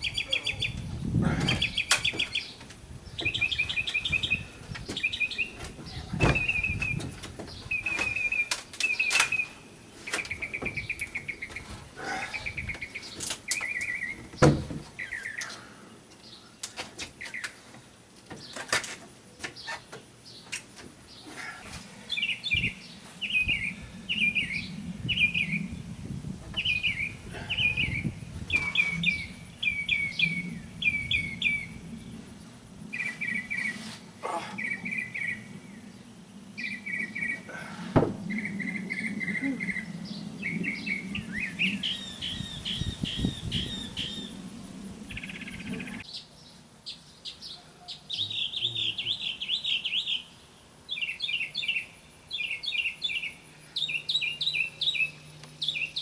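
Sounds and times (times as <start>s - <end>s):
songbirds chirping: 0.0s - 56.0s
sharp knock: 38.0s - 38.2s.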